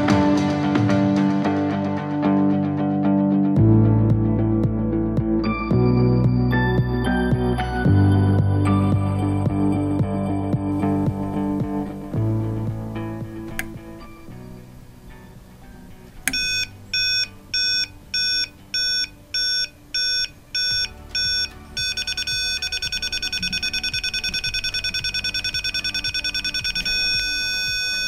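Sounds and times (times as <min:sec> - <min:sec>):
continuous electronic tone: 0:16.2 - 0:28.0
high electronic beeping: 0:16.3 - 0:28.0.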